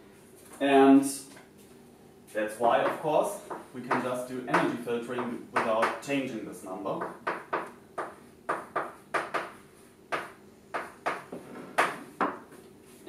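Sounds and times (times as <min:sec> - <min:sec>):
chalk tapping and scratching on chalkboard: 0:07.0 - 0:13.0.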